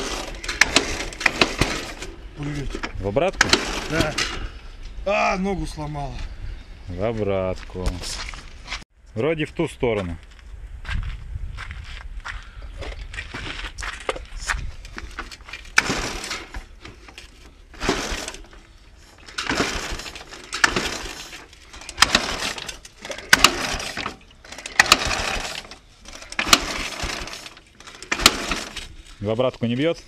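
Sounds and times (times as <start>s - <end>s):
kick-starter clacking: 0.0s - 4.4s, 15.2s - 18.6s, 19.2s - 28.9s
motorcycle engine turning over: 0.0s - 4.6s, 13.2s - 29.1s.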